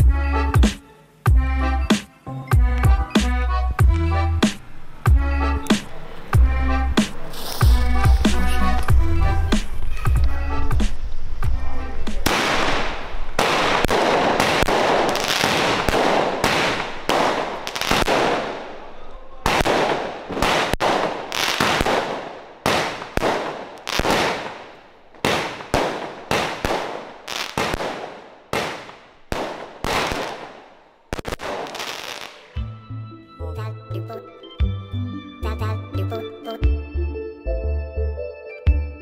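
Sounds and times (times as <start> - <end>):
firework bangs: 12.0 - 32.6.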